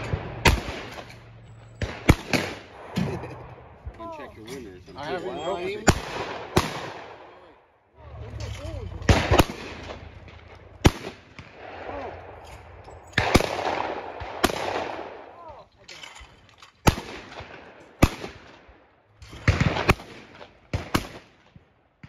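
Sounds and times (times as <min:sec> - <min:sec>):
shotgun shots: 0:00.0 - 0:03.4, 0:05.8 - 0:07.3, 0:09.0 - 0:12.4, 0:13.1 - 0:15.4, 0:16.8 - 0:18.7, 0:19.3 - 0:21.4.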